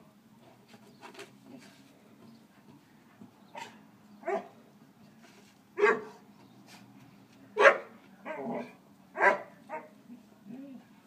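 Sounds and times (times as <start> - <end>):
dog barking: 3.6 - 4.5, 5.8 - 6.2, 7.6 - 10.0.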